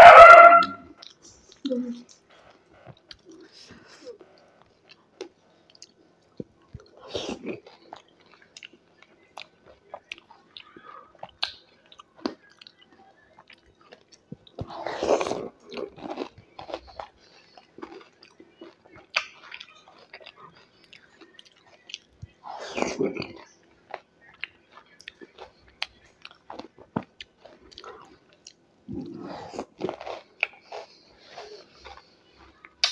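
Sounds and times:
person biting and chewing: 0:14.5 - 0:22.1, 0:24.3 - 0:32.1.

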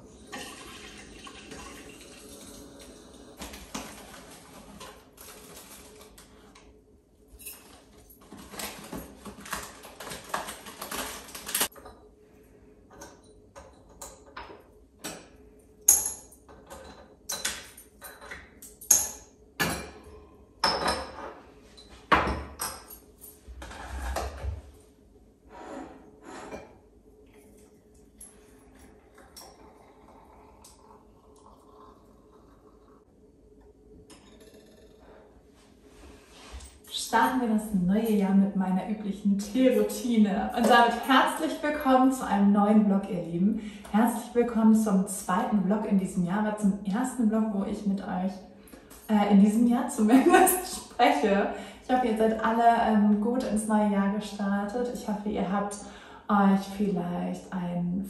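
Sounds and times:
cups and dishes clinking: 0:12.9 - 0:23.1, 0:28.2 - 0:31.9.

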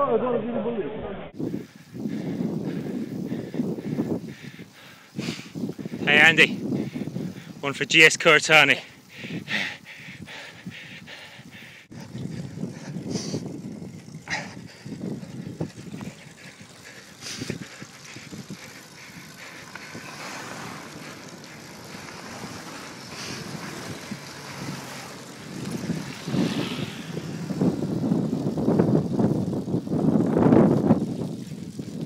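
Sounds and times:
wind buffeting microphone: 0:01.3 - 0:32.0
tyres rolling over gravel: 0:11.9 - 0:32.0.

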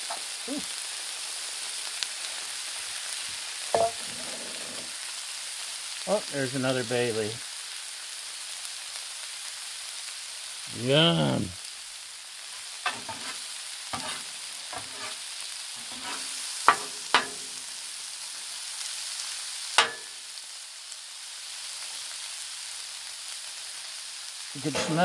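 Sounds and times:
food sizzling on griddle: 0:00.0 - 0:25.0
metal spatula scraping: 0:03.8 - 0:04.9, 0:12.8 - 0:15.2, 0:15.8 - 0:17.7, 0:19.8 - 0:20.1, 0:24.6 - 0:25.0
spatula clanking on steel: 0:03.8 - 0:04.9, 0:12.8 - 0:13.4, 0:14.0 - 0:15.2, 0:15.8 - 0:17.7, 0:19.8 - 0:20.2, 0:24.7 - 0:25.0.

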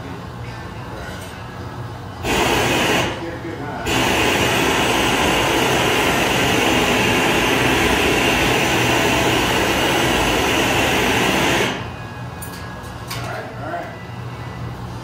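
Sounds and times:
torch flame hissing: 0:02.2 - 0:11.9.

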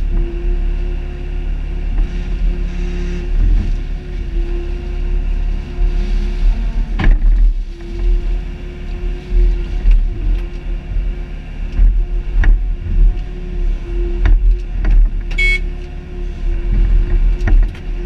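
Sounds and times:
excavator engine and hydraulics: 0:00.0 - 0:18.0
high squeak: 0:15.4 - 0:15.6.

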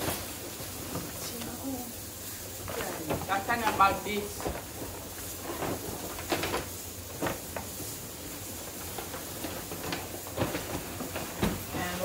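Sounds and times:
steady hiss: 0:00.0 - 0:12.0
packaging knocks and rustles: 0:02.6 - 0:12.0.

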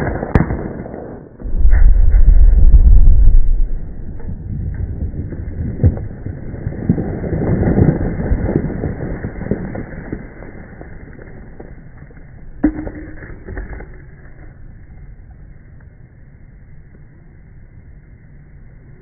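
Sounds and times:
rock debris falling and clattering: 0:01.4 - 0:14.7.

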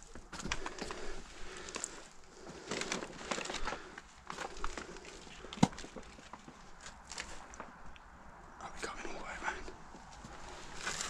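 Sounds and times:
crackles and clicks: 0:00.0 - 0:08.1
footsteps crunching over debris: 0:10.0 - 0:11.0.

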